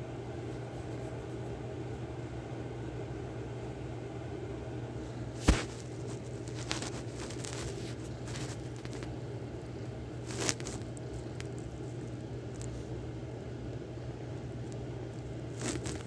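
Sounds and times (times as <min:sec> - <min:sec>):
steady low hum: 0:00.0 - 0:16.0
soft crackles: 0:05.4 - 0:13.0, 0:13.6 - 0:16.0.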